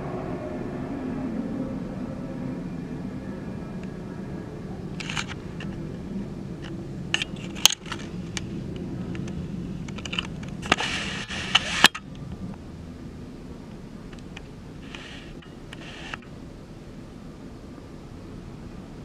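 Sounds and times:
low steady rumble: 0:00.0 - 0:19.0
rustling scrape: 0:10.0 - 0:12.0, 0:14.8 - 0:16.2.

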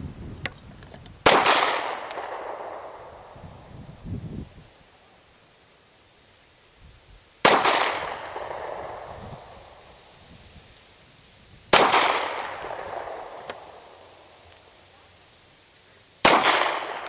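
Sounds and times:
pistol shots with echo: 0:01.2 - 0:03.4, 0:07.4 - 0:09.5, 0:11.7 - 0:13.9, 0:16.2 - 0:17.0.

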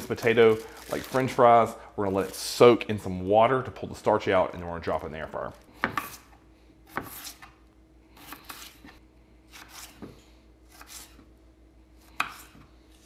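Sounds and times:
knife slicing potato on board: 0:05.8 - 0:07.6, 0:08.2 - 0:11.3, 0:12.0 - 0:13.0.

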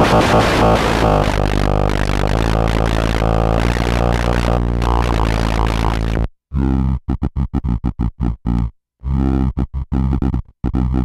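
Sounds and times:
gritty electronic drum beat: 0:00.0 - 0:06.0.

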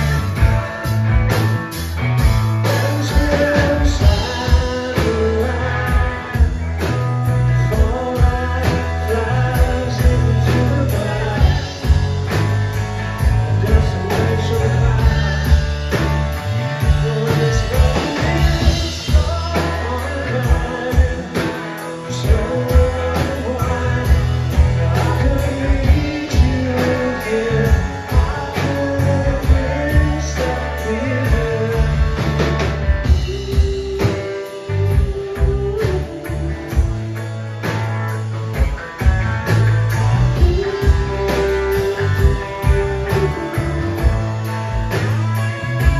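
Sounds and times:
man singing lead: 0:00.0 - 0:01.3, 0:02.6 - 0:45.9
rock band playing: 0:00.0 - 0:45.9.

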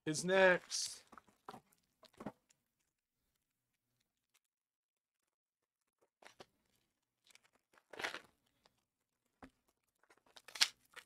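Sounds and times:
plastic packaging tearing and crinkling: 0:10.3 - 0:11.0.

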